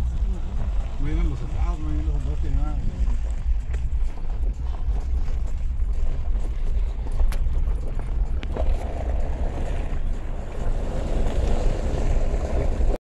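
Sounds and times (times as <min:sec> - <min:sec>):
vehicle road and engine rumble: 0:00.0 - 0:13.0.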